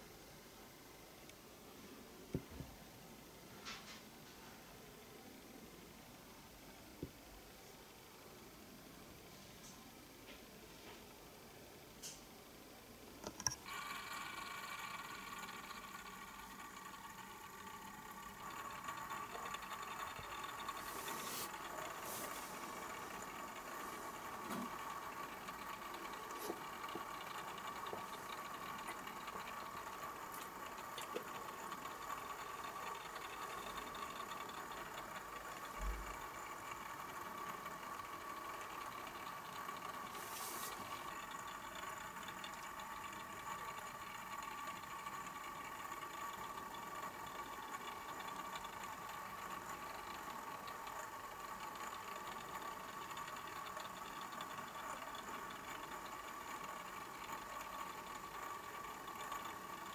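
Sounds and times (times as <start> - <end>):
small electric motor humming: 13.3 - 59.9
faint clicks: 22.7 - 59.9.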